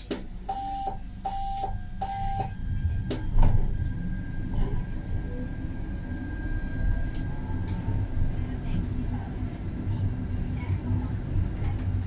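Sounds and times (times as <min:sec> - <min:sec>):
tram rumble: 0:00.0 - 0:12.0
tram warning beeps: 0:00.4 - 0:08.2.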